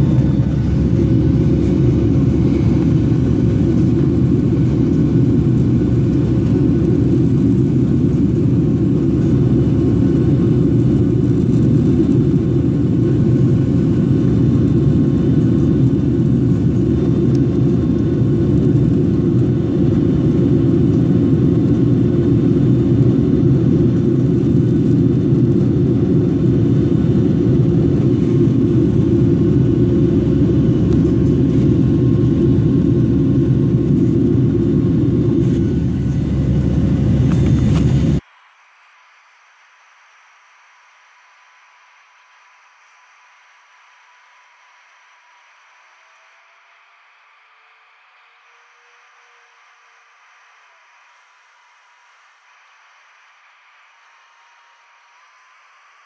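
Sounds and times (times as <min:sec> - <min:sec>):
jet engines and rushing air rumble: 0:00.0 - 0:38.2
faint steady hum: 0:00.0 - 0:56.0.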